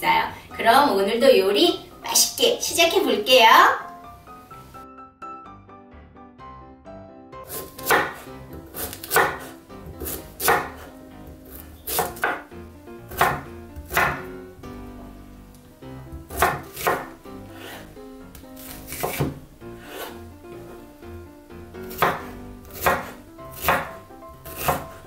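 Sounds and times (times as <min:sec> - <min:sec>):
knife chopping on wooden board: 0:07.5 - 0:12.5, 0:13.1 - 0:14.3, 0:16.1 - 0:17.9, 0:18.6 - 0:20.2, 0:21.8 - 0:25.0.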